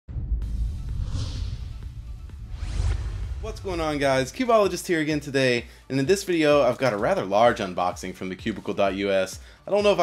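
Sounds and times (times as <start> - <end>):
whoosh: 0.1 - 4.4
intro music with deep bass: 0.1 - 5.2.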